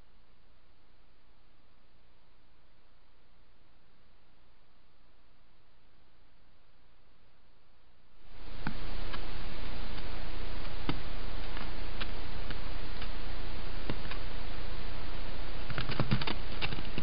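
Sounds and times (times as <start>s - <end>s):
low microphone hum: 0.0s - 17.0s
microphone hiss: 0.0s - 17.0s
sharp clicks and ticks: 15.7s - 17.0s.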